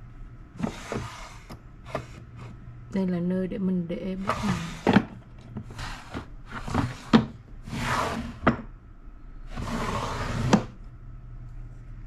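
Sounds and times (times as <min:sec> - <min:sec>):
wooden drawers sliding: 0:00.6 - 0:02.6, 0:04.2 - 0:08.6, 0:09.5 - 0:10.8.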